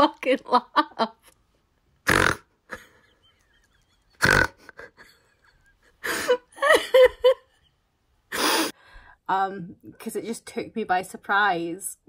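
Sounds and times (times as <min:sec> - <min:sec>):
woman laughing and snorting: 0:02.6 - 0:07.6.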